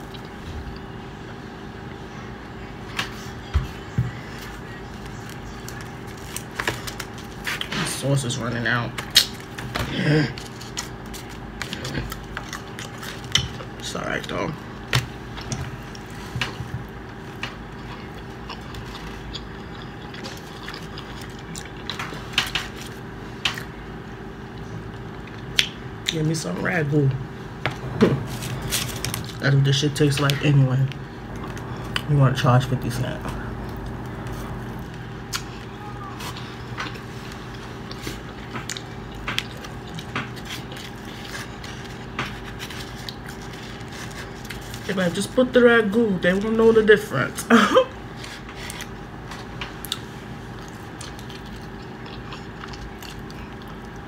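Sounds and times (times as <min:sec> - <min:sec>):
chewing crunchy food: 0:00.0 - 0:01.0, 0:09.0 - 0:26.3, 0:32.8 - 0:45.4, 0:48.0 - 0:54.0
steady low hum: 0:00.0 - 0:54.0.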